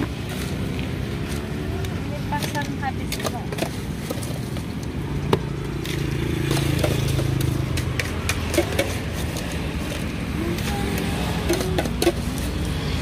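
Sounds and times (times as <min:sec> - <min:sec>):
plastic shaker and cups clicking: 0:00.0 - 0:13.0
passing motorcycle engine: 0:05.0 - 0:13.0.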